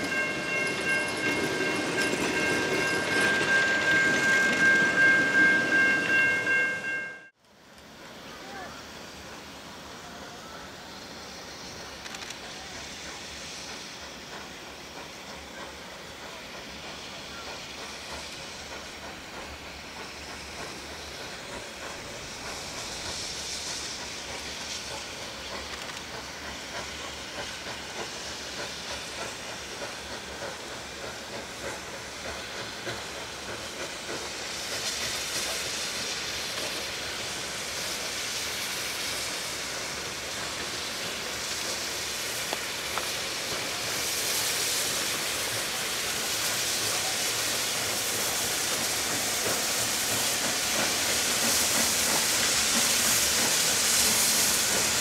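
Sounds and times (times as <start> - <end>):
train carriages rolling: 0.0 - 7.3
steam hissing: 0.0 - 55.0
steam locomotive passing: 0.0 - 55.0.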